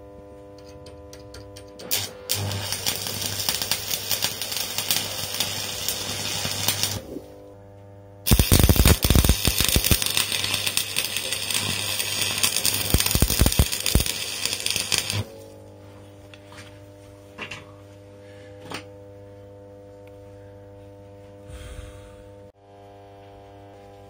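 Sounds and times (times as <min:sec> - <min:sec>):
low hum: 0:00.1 - 0:24.0
crackling welding arc: 0:01.8 - 0:07.3, 0:08.2 - 0:15.3.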